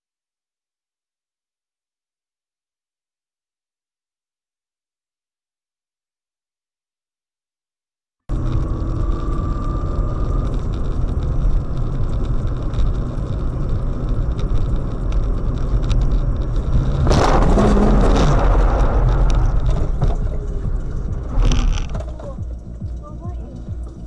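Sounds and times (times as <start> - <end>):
car road and engine rumble: 8.3 - 24.0
loud rushing burst: 16.8 - 21.9.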